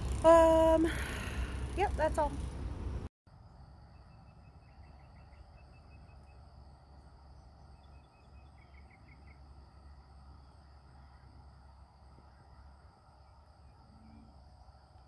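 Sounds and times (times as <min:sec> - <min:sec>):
low steady rumble: 0:00.0 - 0:15.0
insect chirping: 0:03.3 - 0:15.0
insect drone: 0:03.3 - 0:15.0.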